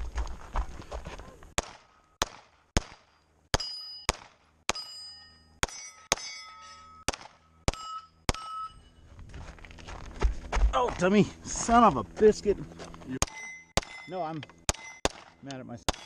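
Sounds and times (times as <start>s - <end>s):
pistol shots: 1.6s - 4.8s, 7.1s - 8.5s, 13.2s - 16.0s
steel plate clanging: 4.7s - 9.0s, 13.2s - 16.0s.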